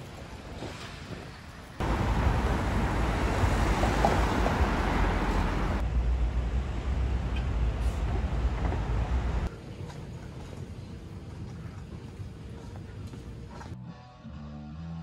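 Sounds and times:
street traffic: 1.5 - 9.5.

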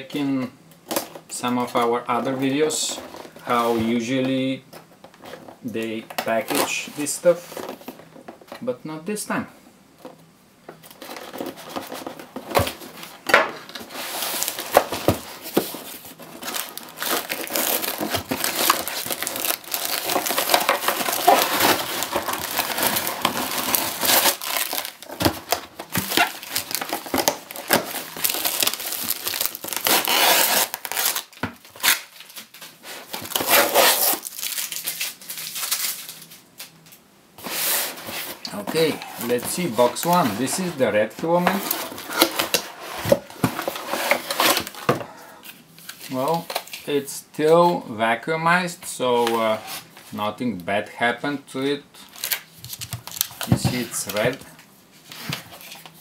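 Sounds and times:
tape tearing: 10.8 - 40.7, 52.0 - 54.4
knife slicing packing tape: 29.8 - 31.2.

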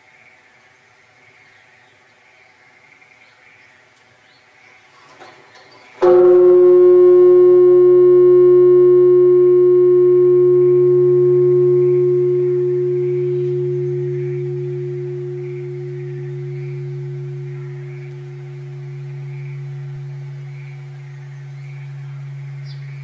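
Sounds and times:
temple bell struck and ringing: 6.0 - 23.0.

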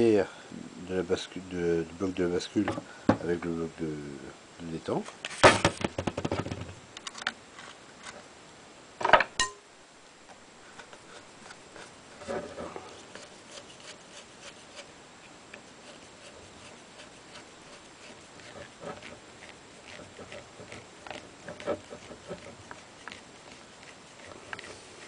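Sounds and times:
clatter of sharp knocks: 5.4 - 6.8.

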